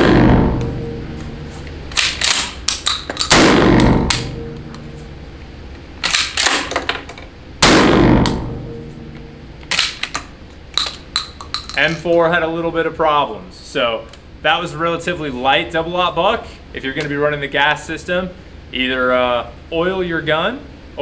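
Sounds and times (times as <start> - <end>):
shotgun shots echoing: 0.0 - 0.8, 3.2 - 4.6, 7.6 - 8.8.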